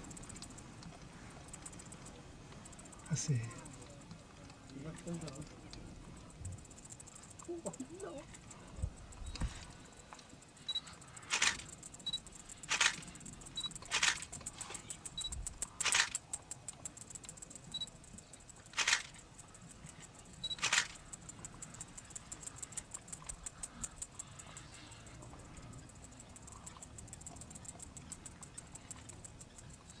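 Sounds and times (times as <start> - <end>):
faint fast ticking: 0.0 - 30.0
camera autofocus beep: 10.6 - 13.0, 13.6 - 14.2, 17.7 - 17.9, 20.4 - 21.0
camera shutter firing: 11.3 - 11.7, 12.7 - 13.1, 13.8 - 14.3, 15.8 - 16.2, 18.7 - 19.2, 20.6 - 21.0.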